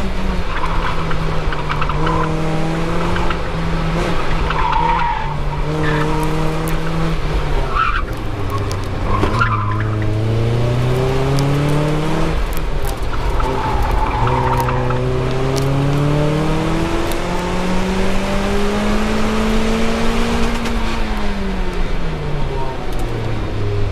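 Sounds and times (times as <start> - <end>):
car engine revving: 0.0 - 23.9
tire squeal: 0.4 - 2.4, 4.3 - 6.8, 7.6 - 10.2, 12.9 - 15.2.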